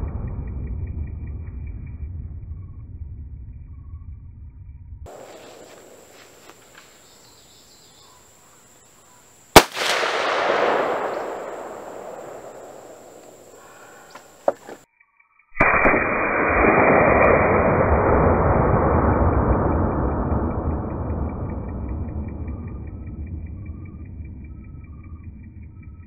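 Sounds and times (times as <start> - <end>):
rifle shot with rolling echo: 5.1 - 6.8, 9.5 - 14.4, 15.6 - 21.0
smaller sharp crack: 9.5 - 14.8, 15.6 - 18.0.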